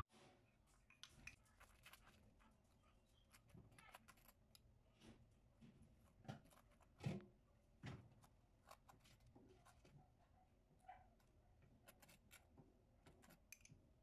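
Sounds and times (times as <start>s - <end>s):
metal spoon tapping and scraping: 13.1s - 13.7s.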